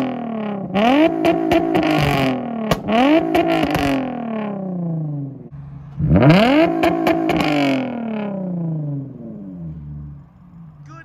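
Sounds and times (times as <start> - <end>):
car engine revving: 0.0 - 10.9
exhaust pops and crackles: 0.7 - 4.1.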